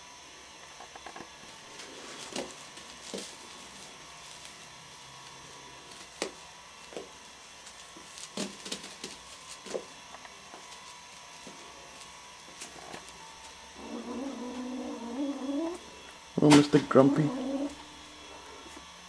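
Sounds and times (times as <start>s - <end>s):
kittens scampering on plastic sheet: 1.4s - 15.8s.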